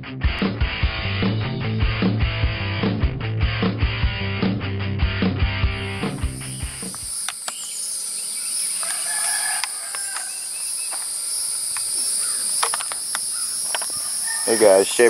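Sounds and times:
insects droning: 5.7s - 15.0s
sharp clicks: 6.7s - 7.8s, 8.8s - 10.3s, 12.6s - 14.1s
rooster crowing: 8.5s - 11.4s, 13.3s - 15.0s.

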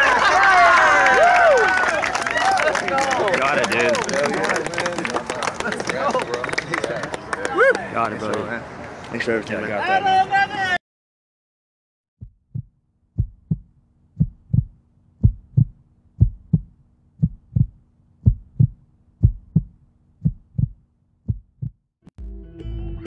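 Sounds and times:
heartbeat thumps: 12.2s - 21.9s.

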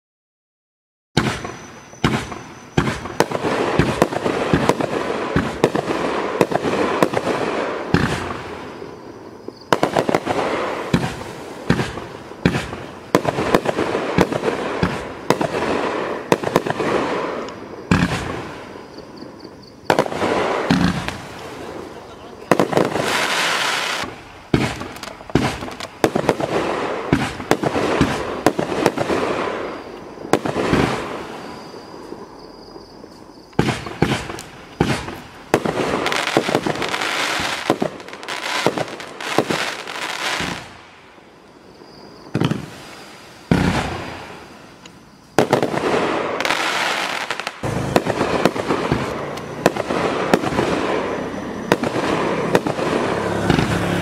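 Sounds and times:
firework cake shots bursting: 1.2s - 8.4s, 9.5s - 18.4s, 22.4s - 29.8s, 33.6s - 40.7s.

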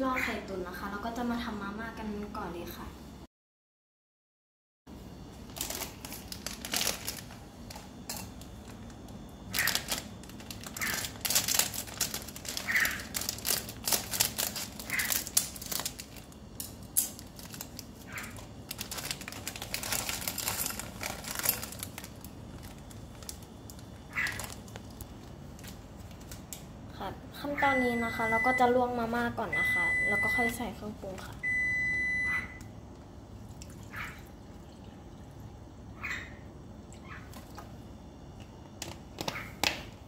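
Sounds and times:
sachets rustling: 5.4s - 26.4s
plastic packet crinkling: 5.4s - 26.7s.

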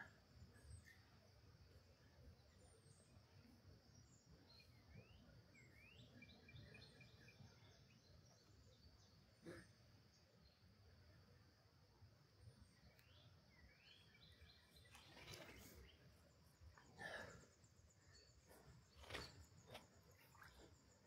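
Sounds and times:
faint bird chirps: 0.0s - 11.6s, 12.4s - 21.0s
faint click: 12.9s - 13.2s.

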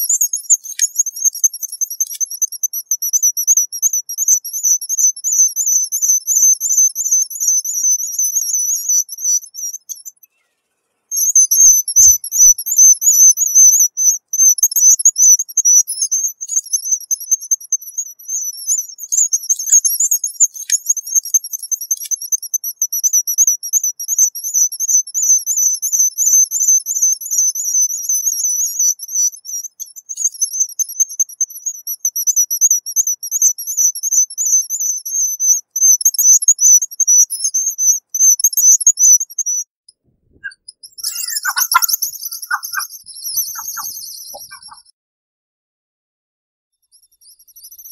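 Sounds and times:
seabird whistled trills: 11.1s - 25.7s, 40.4s - 44.9s.

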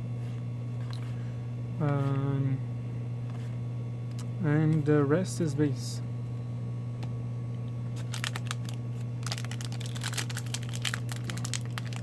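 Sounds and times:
steady low hum: 0.0s - 12.0s
card pack crinkling and tearing: 8.0s - 12.0s.

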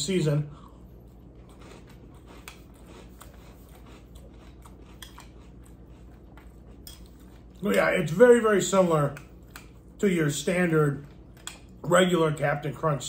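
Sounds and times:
person crunching cereal: 1.1s - 8.2s.

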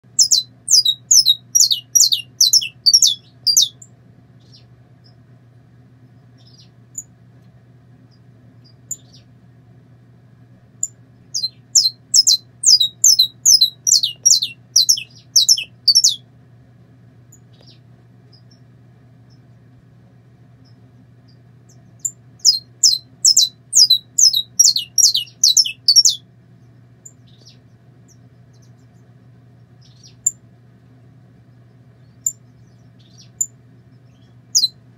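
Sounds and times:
finch singing: 0.0s - 5.2s, 6.2s - 7.1s, 8.1s - 9.4s, 10.8s - 16.2s, 17.3s - 18.7s, 20.6s - 30.4s, 31.5s - 34.8s
faint low hum: 0.0s - 34.9s.

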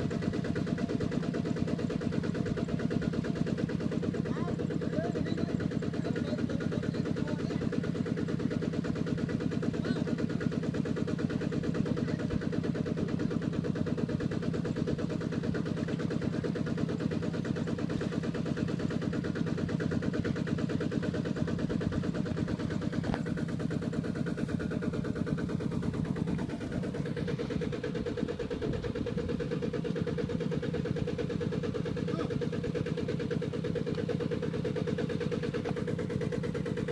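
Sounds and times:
diesel engine thudding: 21.3s - 29.1s.

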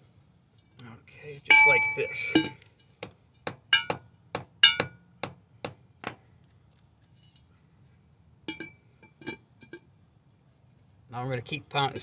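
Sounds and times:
hammer striking metal bolts: 1.5s - 6.2s.

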